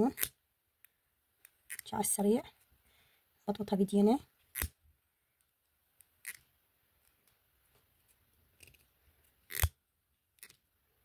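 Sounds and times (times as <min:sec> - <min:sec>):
soft clicks and rustles of yarn: 0:05.3 - 0:09.4.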